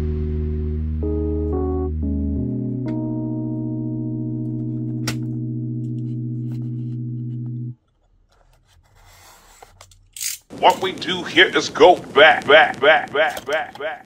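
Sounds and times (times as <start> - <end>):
background music sustained chord: 0.0 - 7.7.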